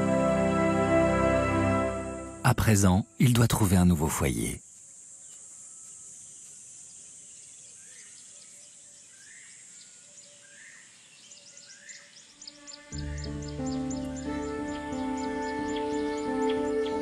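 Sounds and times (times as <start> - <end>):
high-pitched insect buzz: 11.6 - 17.0
soft background music: 12.5 - 17.0.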